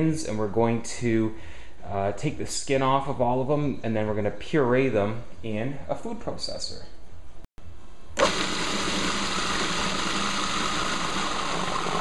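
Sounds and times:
food processor motor and blade: 8.2 - 12.0.

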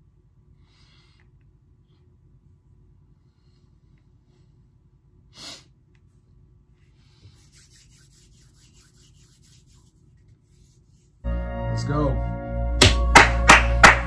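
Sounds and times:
faint scratchy rubbing: 7.3 - 11.2.

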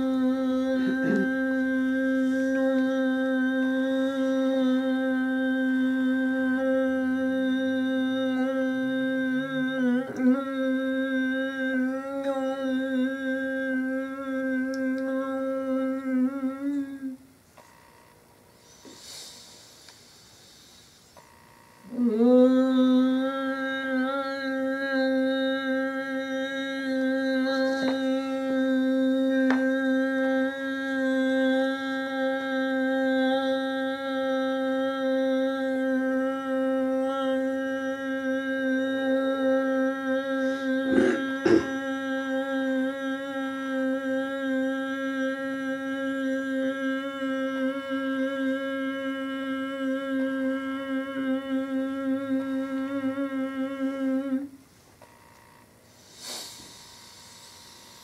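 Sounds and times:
person humming a long note: 0.0 - 17.9, 18.5 - 58.0.

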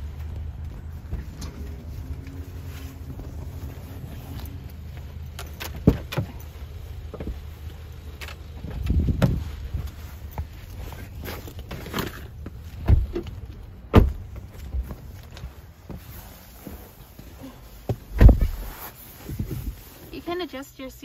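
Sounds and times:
wind rumbling on microphone: 8.5 - 10.8, 18.1 - 20.0.

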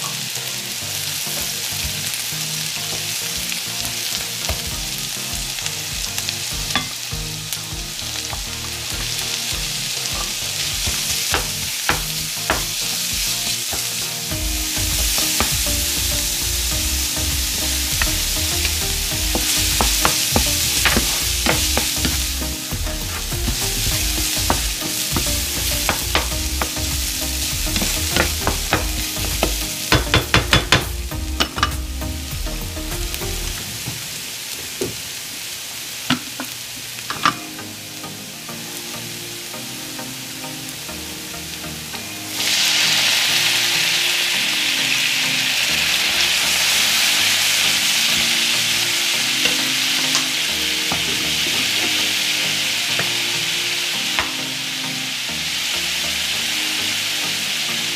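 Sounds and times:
garlic and onion sizzling in oil: 0.0 - 39.7, 40.6 - 57.9
wooden spatula scraping a pan: 17.6 - 27.0.

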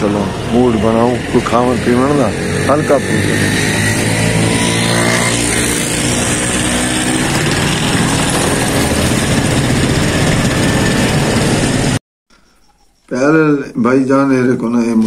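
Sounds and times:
road noise: 0.0 - 12.0
vehicle engine running: 0.0 - 12.0.

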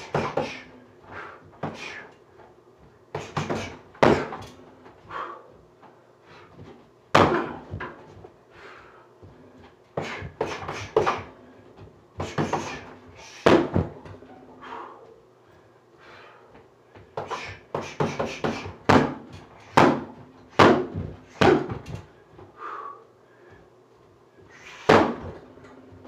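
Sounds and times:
thuds of punches and bare feet: 0.0 - 0.7, 3.1 - 4.6, 6.5 - 8.3, 10.0 - 14.2, 17.2 - 22.5, 24.8 - 25.4
punches on heavy bag: 3.2 - 4.5, 12.2 - 14.1, 24.8 - 25.4.

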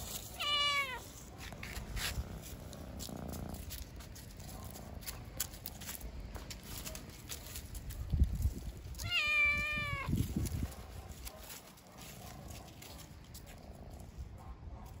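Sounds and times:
cat meowing: 0.2 - 1.2, 9.0 - 10.2.

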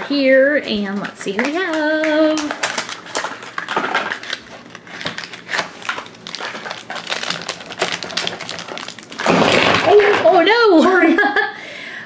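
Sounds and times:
foil bag crinkling: 0.7 - 10.4.

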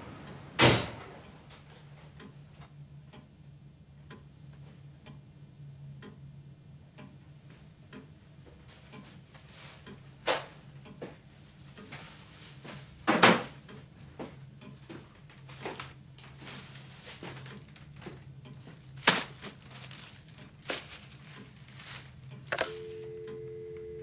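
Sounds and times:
paper and plastic bag rustling: 15.5 - 18.1, 18.8 - 22.6
telephone handset click: 22.5 - 23.9
telephone dial tone: 22.5 - 24.0.

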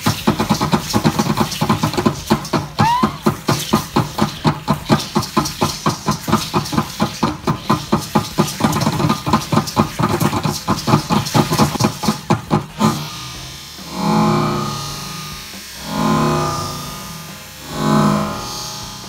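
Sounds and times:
drum beating fast rhythm: 0.0 - 13.4
steady hiss: 0.0 - 19.0.

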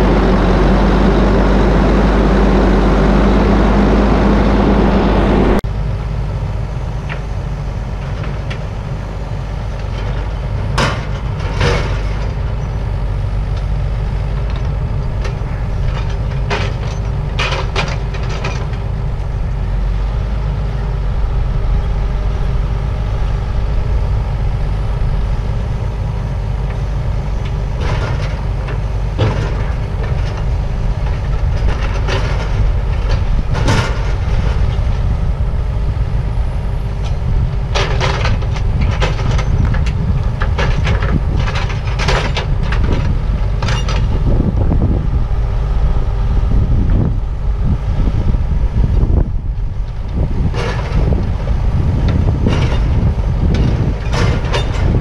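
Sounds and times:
tractor diesel engine running: 0.0 - 55.0
metallic clanks and rattles: 9.8 - 12.7, 14.4 - 18.8, 27.4 - 35.0, 37.0 - 44.8, 49.9 - 51.4, 52.0 - 55.0.

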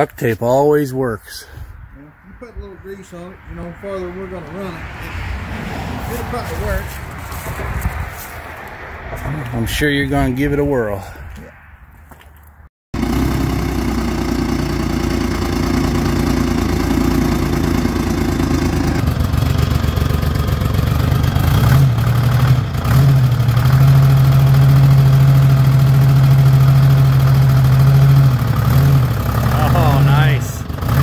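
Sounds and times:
backhoe engine idling: 13.0 - 31.0.

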